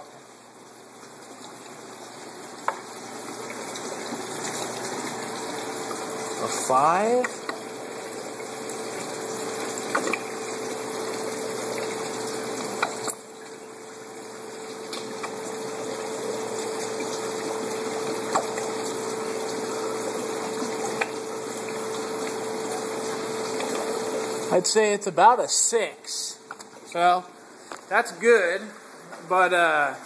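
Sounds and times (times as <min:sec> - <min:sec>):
aquarium pump humming: 0:00.0 - 0:30.0.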